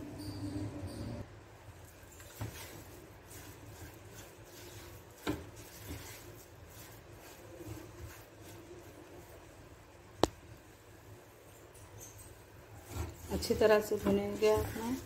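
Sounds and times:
spatula scraping pan: 0:02.0 - 0:09.5, 0:12.0 - 0:15.0.

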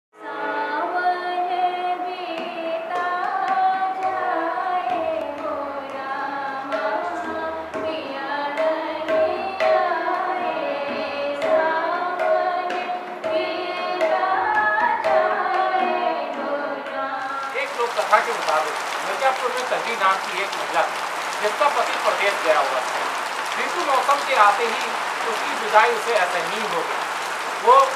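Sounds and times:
woman singing folk song: 0:00.2 - 0:17.4.

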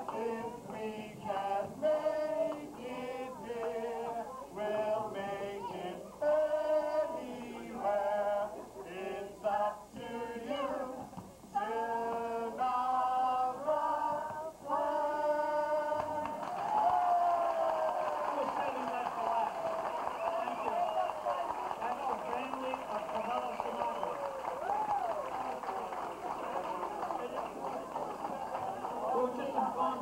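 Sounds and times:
group of people singing: 0:00.0 - 0:16.5.

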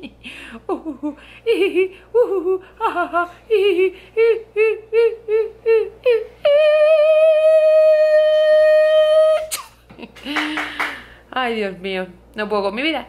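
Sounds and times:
woman laughing in sing-song bursts: 0:00.0 - 0:04.9.

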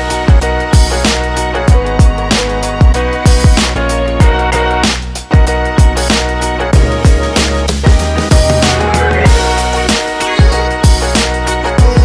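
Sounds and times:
electronic music with kick drums: 0:00.0 - 0:12.0.

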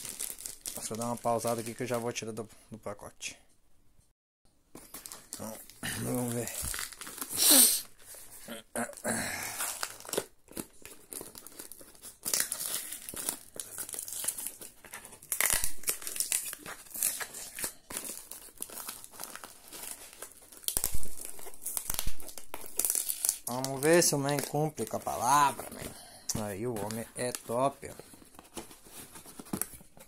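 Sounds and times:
cardboard and packing tape ripping: 0:04.9 - 0:07.9, 0:09.5 - 0:25.8.

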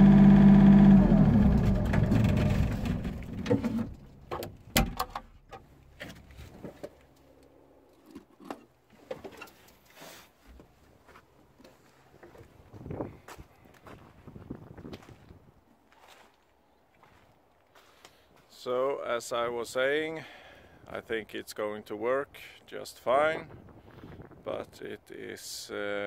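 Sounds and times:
diesel engine winding down: 0:00.0 - 0:03.5.

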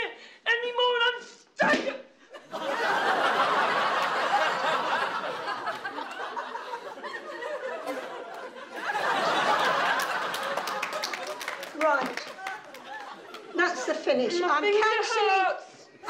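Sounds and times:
audience laughing: 0:02.3 - 0:14.0.

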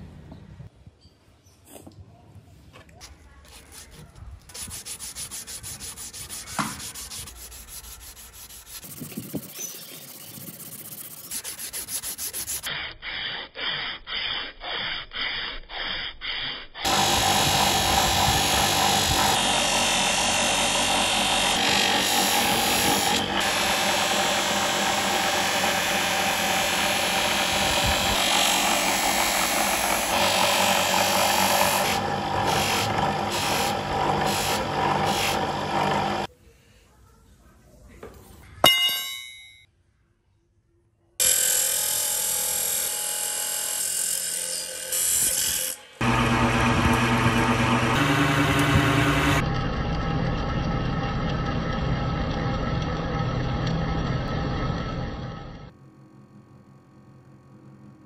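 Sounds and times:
sandpaper rubbing on brass: 0:03.5 - 0:16.9
buffing wheel motor running: 0:16.9 - 0:36.3, 0:46.0 - 0:55.7.

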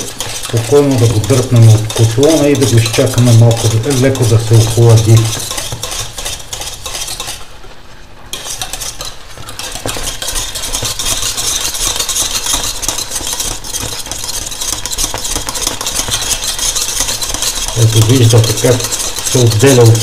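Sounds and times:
whisk scraping paste in a saucepan: 0:00.0 - 0:07.6, 0:08.3 - 0:20.0.

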